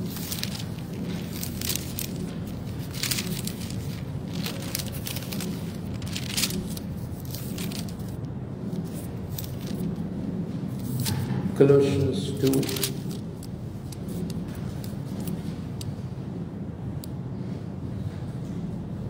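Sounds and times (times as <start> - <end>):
paper pages rustling: 0.0 - 10.0, 10.7 - 11.4, 12.3 - 15.8
low room hum: 0.0 - 19.0.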